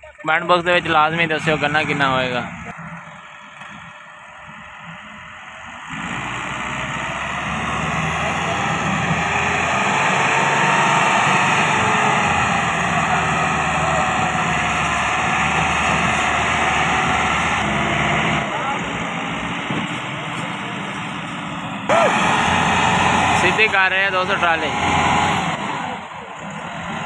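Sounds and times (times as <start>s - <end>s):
tractor diesel engine labouring: 0.0s - 27.0s.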